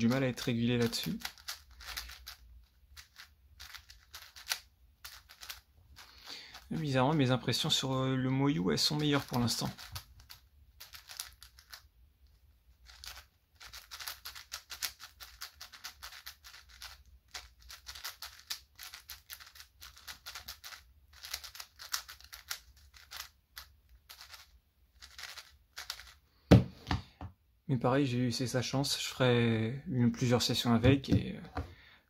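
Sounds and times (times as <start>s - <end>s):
plastic puzzle cube clicking: 0.1s - 6.7s, 9.0s - 26.2s.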